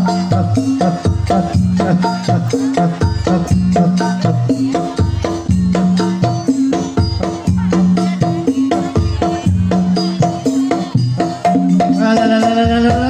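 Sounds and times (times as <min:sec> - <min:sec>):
drums: 0:00.0 - 0:13.0
pitched percussion melody: 0:00.0 - 0:13.0.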